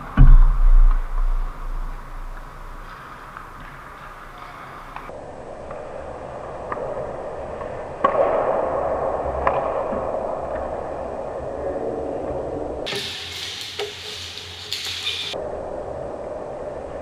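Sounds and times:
hockey sticks and puck clacking: 0.0s - 5.9s, 6.6s - 10.8s, 12.9s - 15.4s
skate blades scraping ice: 2.3s - 5.1s, 12.9s - 15.4s.

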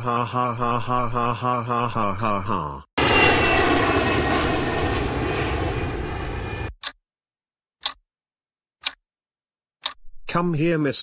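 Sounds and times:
airliner engine whine: 3.0s - 6.8s.

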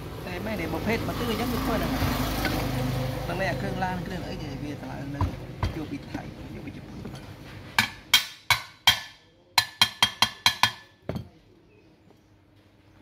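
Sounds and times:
steel tool knocking on metal: 5.2s - 5.9s, 7.8s - 11.4s.

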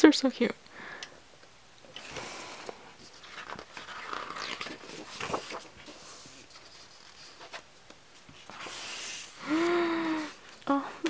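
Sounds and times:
soft page flaps: 3.0s - 7.7s
paper pages rustling: 3.0s - 9.7s.

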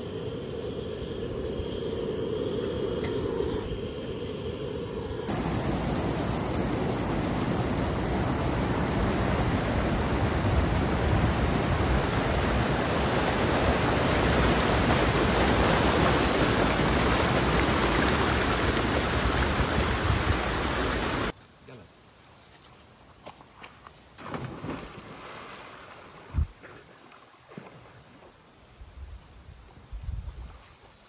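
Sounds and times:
waterfall rushing: 5.3s - 21.3s.

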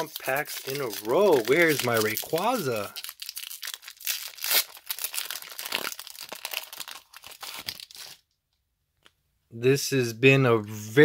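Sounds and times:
foil wrapper crinkling and tearing: 0.0s - 8.2s.

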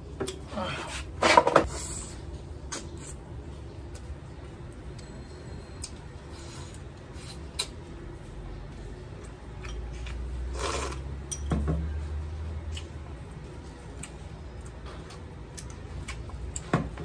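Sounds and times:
slurping soup: 10.5s - 11.1s.

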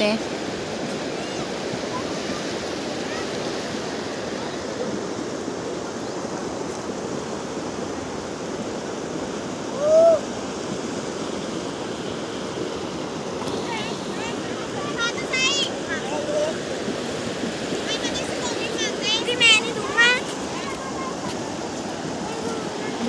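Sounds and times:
river water rushing: 0.0s - 23.0s
loud rising and falling call: 9.7s - 10.3s.

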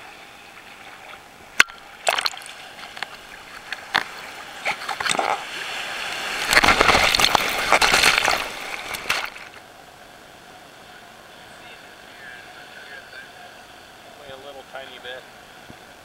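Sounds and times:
surf splashing: 0.0s - 16.0s
breaking wave whitewash rushing: 4.0s - 9.6s.

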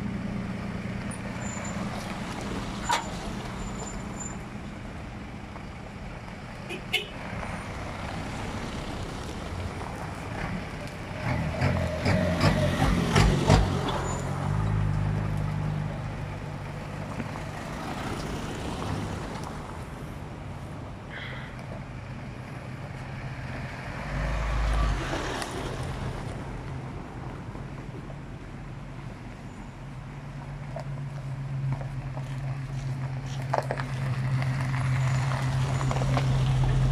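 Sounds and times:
vehicle engines running low: 0.0s - 36.9s
tyres crunching on gravel: 30.3s - 36.9s.

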